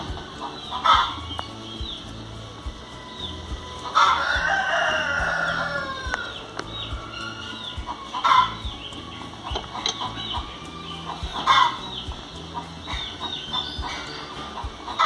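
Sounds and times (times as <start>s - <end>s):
rooster crowing: 3.1s - 8.6s.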